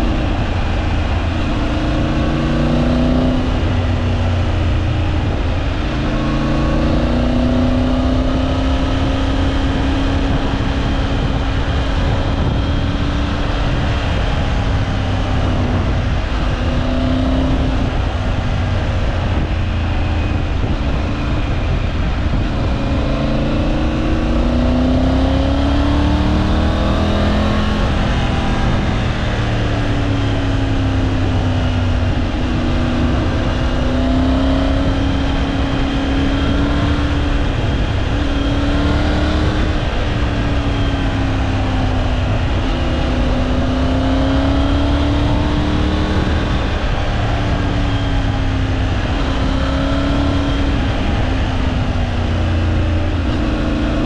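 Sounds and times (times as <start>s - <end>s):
motorcycle engine accelerating: 0.0s - 54.0s
wind noise: 0.0s - 54.0s.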